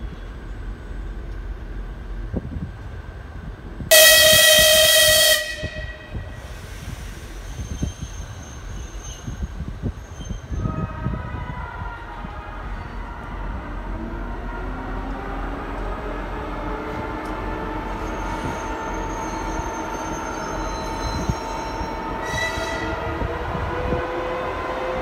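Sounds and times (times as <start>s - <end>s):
electric locomotive horn blast: 3.9s - 6.4s, 22.0s - 23.4s.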